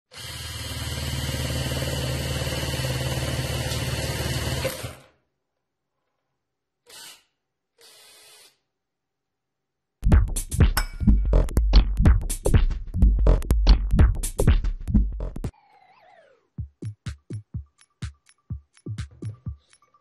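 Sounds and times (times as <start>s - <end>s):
cordless drill driving screw: 6.8s - 8.6s.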